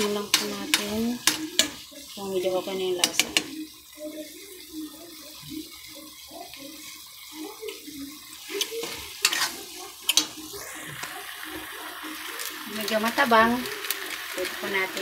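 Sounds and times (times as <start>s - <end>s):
metal utensil clinking on pan: 0.0s - 1.9s, 2.9s - 3.6s, 8.5s - 10.4s.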